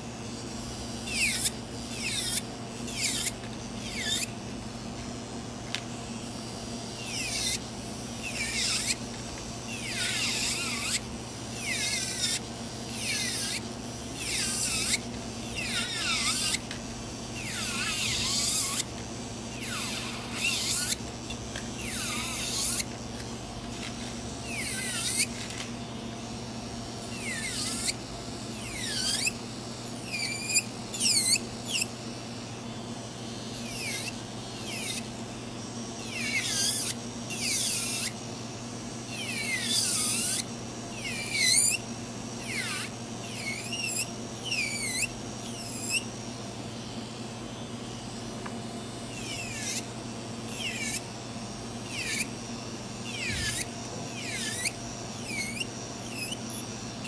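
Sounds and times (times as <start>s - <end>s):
nail drill grinding whine: 1.0s - 4.4s, 6.9s - 25.8s, 27.0s - 28.0s, 28.6s - 29.4s, 33.6s - 35.1s, 36.0s - 38.2s, 39.1s - 46.1s, 49.0s - 49.9s, 50.5s - 57.0s
drill motor humming: 6.9s - 25.7s, 51.7s - 57.0s.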